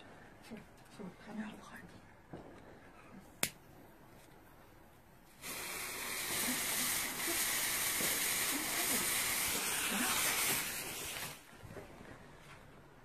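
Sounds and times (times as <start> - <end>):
firecracker fuse hissing: 5.2 - 11.6.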